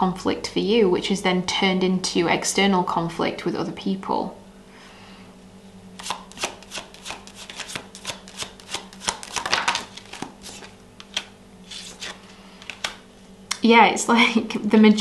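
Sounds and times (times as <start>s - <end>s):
cards being shuffled: 6.0s - 13.0s.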